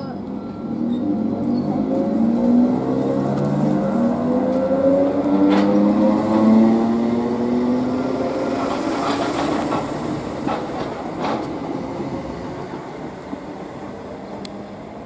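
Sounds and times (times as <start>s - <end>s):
wheels clicking over rail joints: 8.5s - 13.2s.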